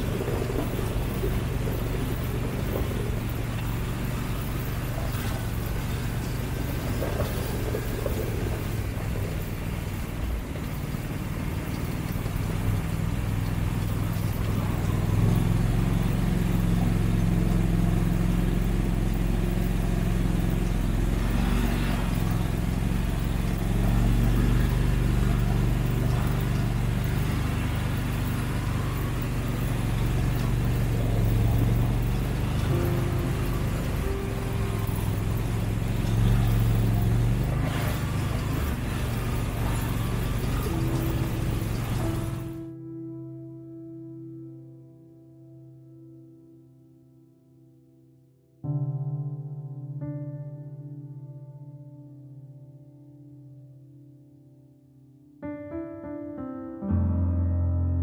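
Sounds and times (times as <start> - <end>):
vehicle engine running: 0.0 - 42.8.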